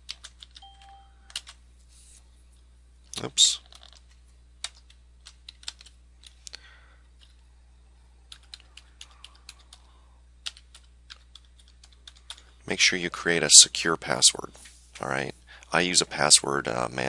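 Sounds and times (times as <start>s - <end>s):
typing on keyboard: 0.0s - 1.6s, 3.6s - 6.4s, 8.3s - 12.5s.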